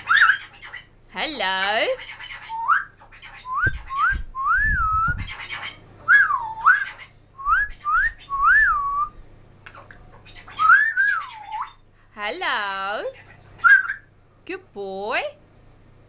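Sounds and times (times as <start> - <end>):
parrot whistling: 0.0 - 0.9, 2.2 - 9.2, 10.4 - 11.8, 13.6 - 14.1
low thumps: 3.5 - 5.3.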